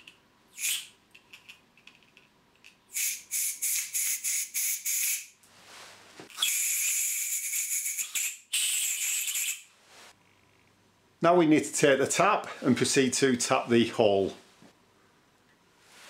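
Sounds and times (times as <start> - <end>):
compressed air spray hissing: 2.9 - 5.3, 6.4 - 9.7.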